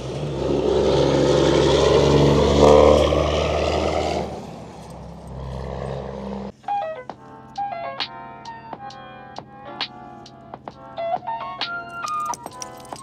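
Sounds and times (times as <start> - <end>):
heavy truck engine running: 0.0 - 10.9
music: 6.5 - 13.0.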